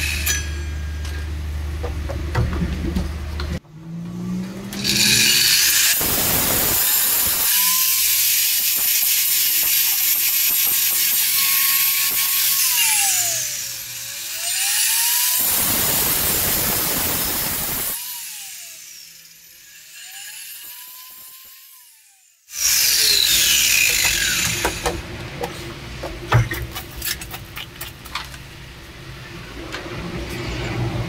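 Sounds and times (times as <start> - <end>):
power tool grinding steel: 4.6 - 25.0.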